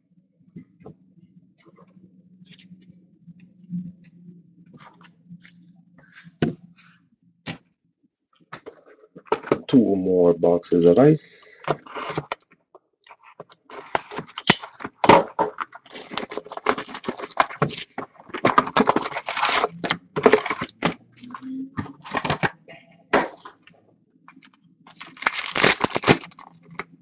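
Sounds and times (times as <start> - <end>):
card packs crinkling and rustling: 13.4 - 21.0, 22.0 - 22.5, 24.9 - 26.9.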